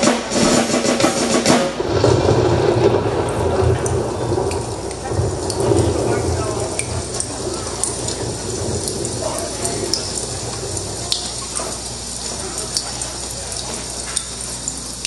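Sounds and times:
rain hissing: 0:00.0 - 0:15.0
drip-like ticks: 0:03.2 - 0:15.0.

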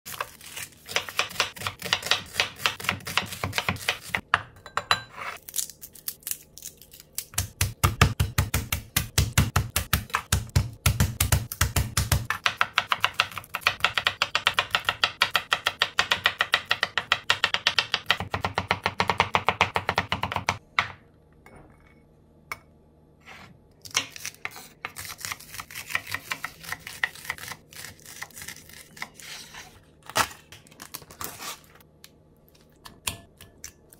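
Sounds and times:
knife chopping on wooden board: 0:00.9 - 0:04.2, 0:07.4 - 0:20.6.

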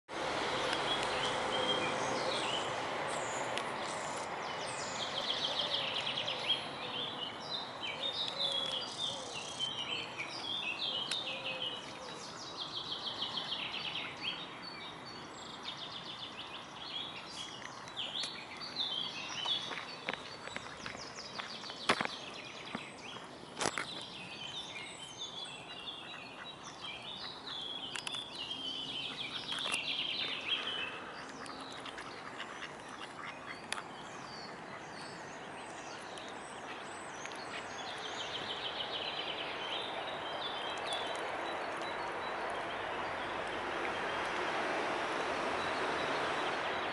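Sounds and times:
steady outdoor background hiss: 0:00.1 - 0:46.9.

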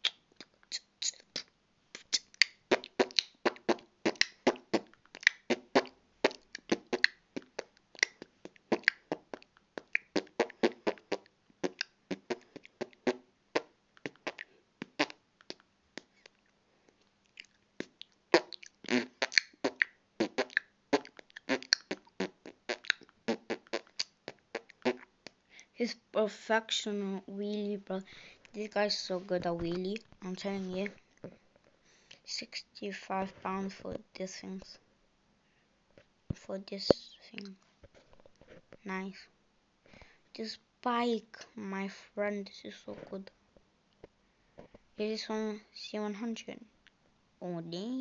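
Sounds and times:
person beatboxing: 0:00.0 - 0:16.1, 0:17.8 - 0:25.1.

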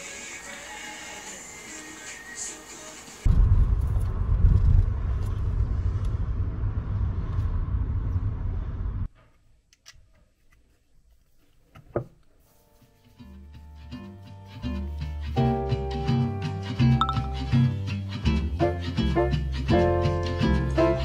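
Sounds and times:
car road noise rumble: 0:03.3 - 0:09.1.

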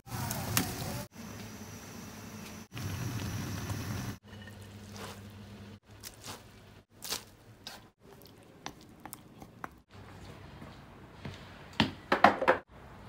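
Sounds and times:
noodles boiling in a wok: 0:00.1 - 0:06.8.

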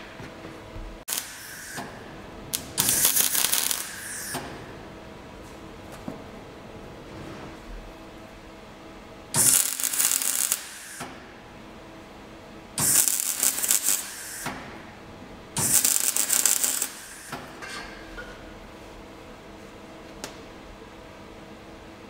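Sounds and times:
welding arc crackle: 0:01.0 - 0:04.6, 0:09.3 - 0:11.1, 0:12.8 - 0:14.6, 0:15.6 - 0:17.4.

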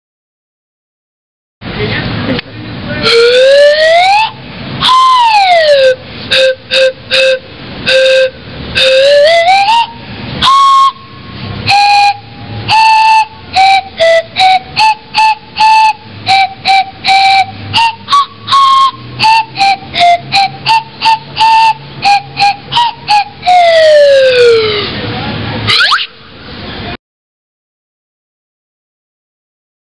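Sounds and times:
slide whistle: 0:03.0 - 0:24.9, 0:25.7 - 0:26.2.

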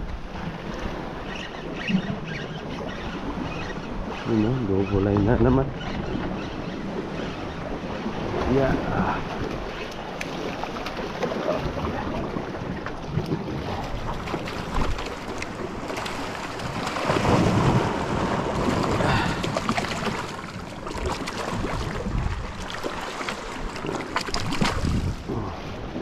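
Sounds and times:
sea waves: 0:00.0 - 0:26.0
wind buffeting microphone: 0:03.1 - 0:22.8, 0:23.4 - 0:26.0.

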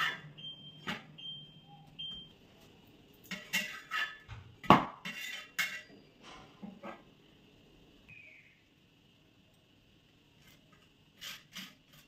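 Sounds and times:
turner scraping on griddle: 0:03.3 - 0:04.3, 0:10.4 - 0:12.0.

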